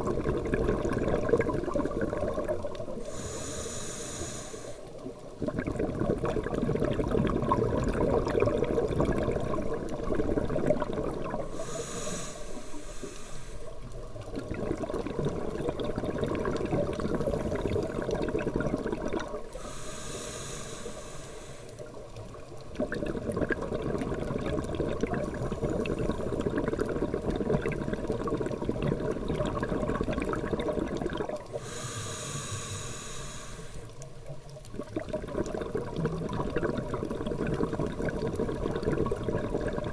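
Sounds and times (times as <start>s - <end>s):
bubbling exhalations underwater: 0.0s - 3.2s, 5.4s - 11.7s, 14.3s - 19.6s, 22.7s - 31.7s, 34.7s - 39.9s
hissing regulator inhalations: 3.0s - 5.0s, 11.4s - 13.8s, 19.5s - 21.9s, 31.5s - 34.0s.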